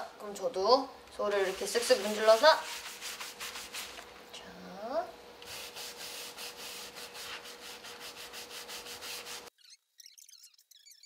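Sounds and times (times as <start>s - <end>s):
bristle brush scrubbing wood: 1.2s - 4.1s, 5.4s - 9.5s.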